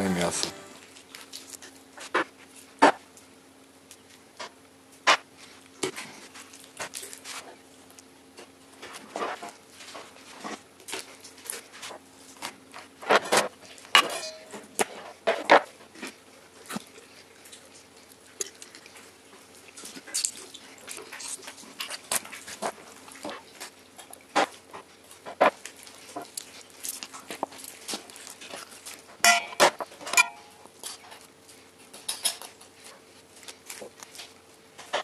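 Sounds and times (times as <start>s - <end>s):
faint steady hum: 0.0s - 0.9s.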